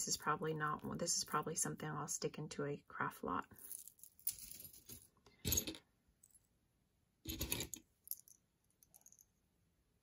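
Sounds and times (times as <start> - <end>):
jewelry clattering: 3.5 - 6.6, 7.2 - 9.4.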